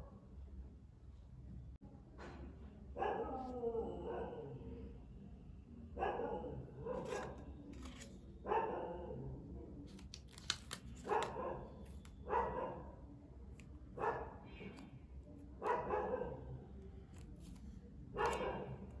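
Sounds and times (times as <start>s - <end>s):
dog barking: 3.0s - 4.6s, 6.0s - 7.4s, 8.4s - 9.2s, 11.0s - 13.0s, 14.0s - 14.5s, 15.6s - 16.6s, 18.1s - 18.8s.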